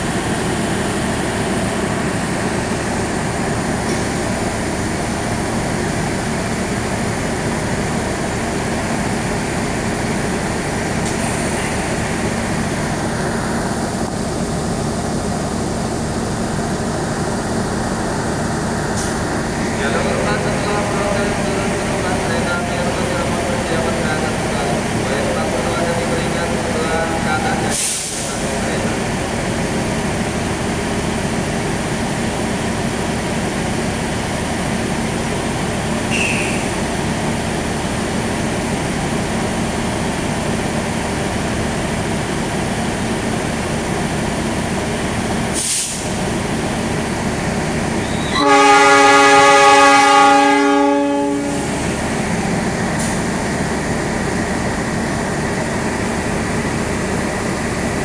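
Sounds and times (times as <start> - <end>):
locomotive idling hum: 0.0 - 58.0
train horn blast: 48.1 - 51.8.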